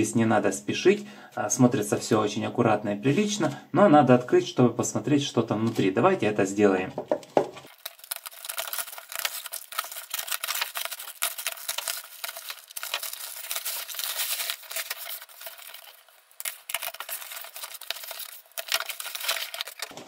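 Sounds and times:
packaging rustling and crackling: 0:07.6 - 0:20.0.

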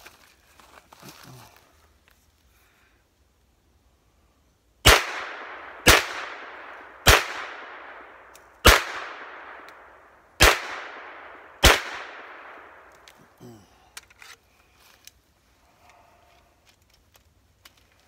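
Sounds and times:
gunshots with long echo: 0:04.8 - 0:13.0.

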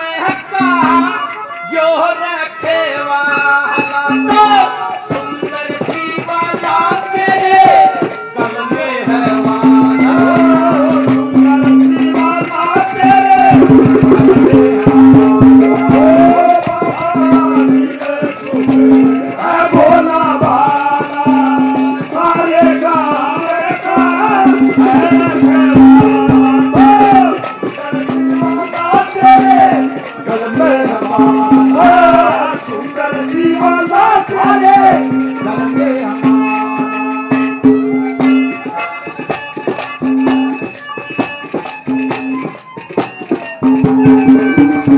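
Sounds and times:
man singing into a microphone: 0:00.0 - 0:37.3
shaken percussion: 0:03.8 - 0:44.9
held low drone note: 0:13.5 - 0:15.3.

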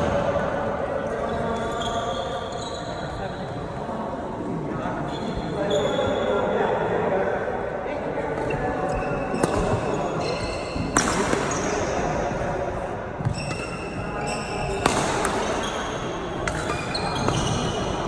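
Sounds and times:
shoes squeaking on court: 0:13.2 - 0:18.0
racket striking shuttlecock: 0:14.7 - 0:15.7, 0:16.4 - 0:17.8.

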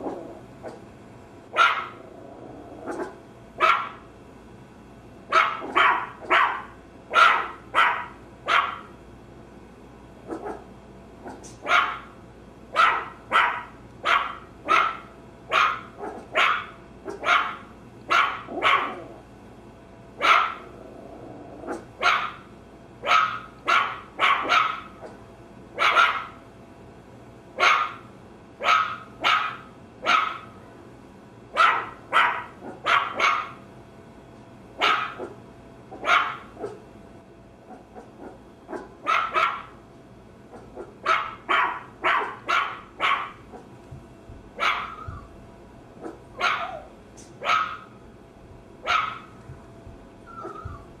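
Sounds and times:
small dog barking: 0:00.0 - 0:00.8, 0:01.5 - 0:02.0, 0:02.8 - 0:04.1, 0:05.3 - 0:08.9, 0:10.3 - 0:19.2, 0:20.2 - 0:20.8, 0:21.6 - 0:25.2, 0:25.8 - 0:26.4, 0:27.6 - 0:30.6, 0:31.5 - 0:33.6, 0:34.8 - 0:36.8, 0:37.7 - 0:39.8, 0:40.5 - 0:43.7, 0:44.6 - 0:45.3, 0:46.0 - 0:48.0, 0:48.8 - 0:49.4, 0:50.3 - 0:50.9.

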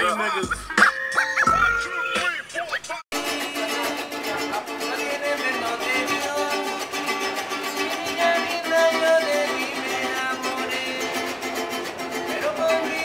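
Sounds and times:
hip-hop music: 0:00.0 - 0:07.0
acoustic guitar strumming: 0:00.0 - 0:13.0.

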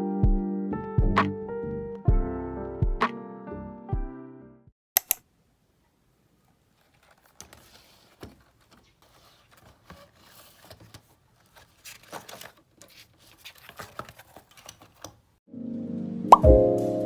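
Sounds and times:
paper rustling: 0:06.6 - 0:15.3.

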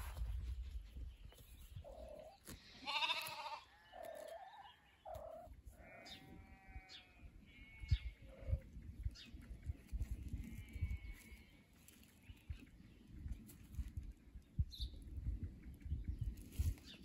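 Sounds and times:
sheep bleating: 0:02.7 - 0:03.7, 0:05.8 - 0:08.1.

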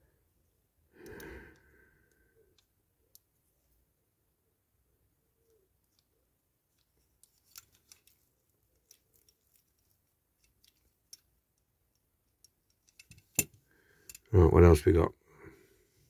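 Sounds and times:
small plastic parts clicking: 0:06.7 - 0:14.3.

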